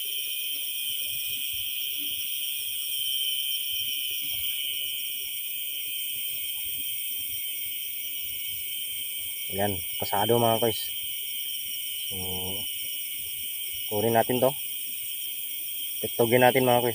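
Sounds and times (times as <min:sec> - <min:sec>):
night insects trilling: 0:00.0 - 0:16.9.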